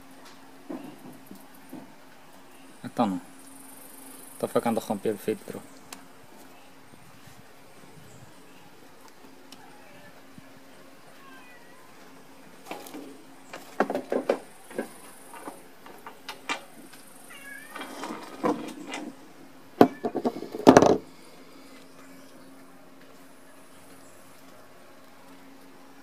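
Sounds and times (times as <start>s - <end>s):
metal parts clattering on wood: 17.7s - 19.2s.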